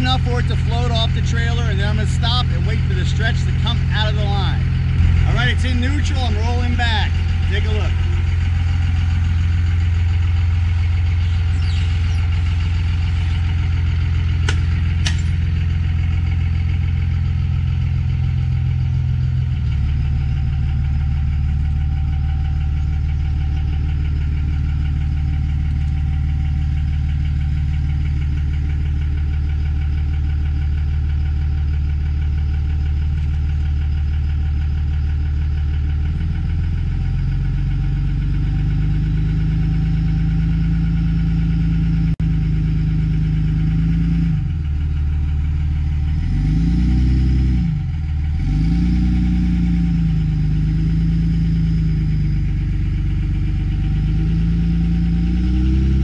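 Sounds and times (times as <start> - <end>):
pickup engine idling: 0.0 - 56.0.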